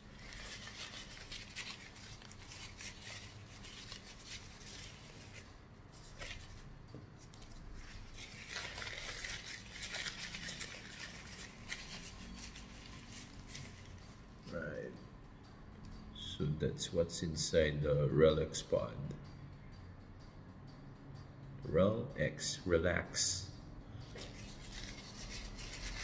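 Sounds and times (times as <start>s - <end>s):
paper towel rustling and scrunching: 0.0s - 6.6s, 7.2s - 14.0s, 24.2s - 26.0s.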